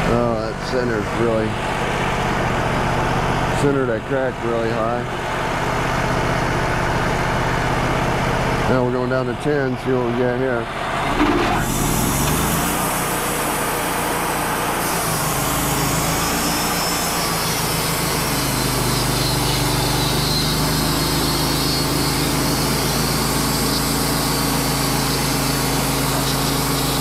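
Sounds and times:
sawmill engine: 0.0s - 27.0s
band blade cutting wood: 11.6s - 13.7s, 14.7s - 27.0s.

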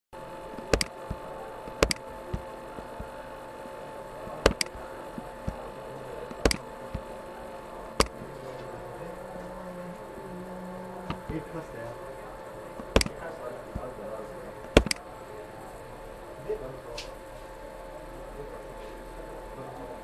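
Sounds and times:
electrical hum: 0.0s - 20.0s
computer mouse clicking: 0.6s - 2.0s, 4.4s - 4.8s, 6.4s - 7.0s, 12.8s - 13.2s, 14.7s - 15.0s.

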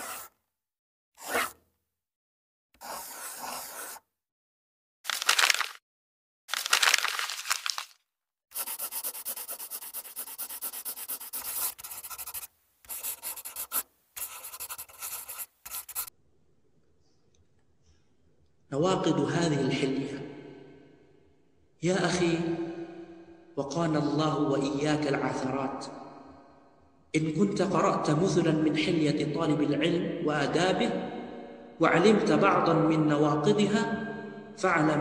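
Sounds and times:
pencil scratching on paper: 0.0s - 0.4s, 1.2s - 1.6s, 2.8s - 4.1s, 8.5s - 16.1s.

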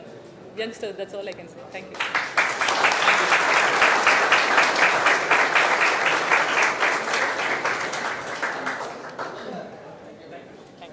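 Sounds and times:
audience applause: 2.0s - 9.4s.

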